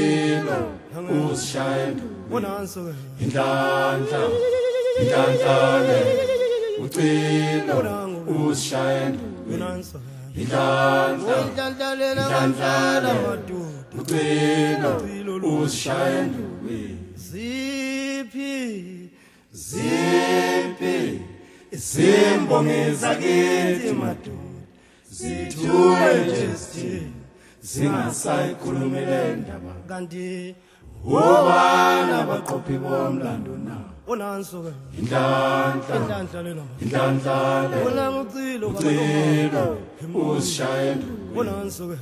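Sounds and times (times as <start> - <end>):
single wavering voice singing: 0.0 - 16.5
a cappella group singing: 0.0 - 42.0.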